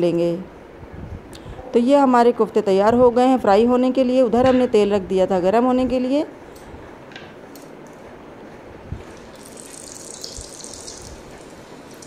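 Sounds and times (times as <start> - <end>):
hot oil sizzling: 9.2 - 12.0.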